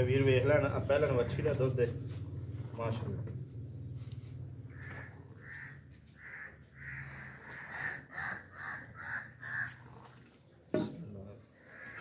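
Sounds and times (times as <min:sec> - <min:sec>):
crow cawing: 0:04.7 - 0:10.0, 0:11.6 - 0:12.0.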